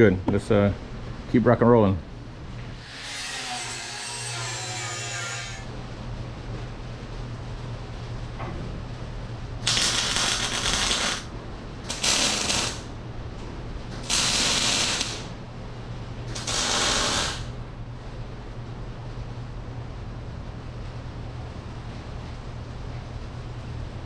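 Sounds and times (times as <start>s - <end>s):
welder arc crackling: 9.6s - 13.1s, 13.8s - 15.4s, 16.3s - 17.6s.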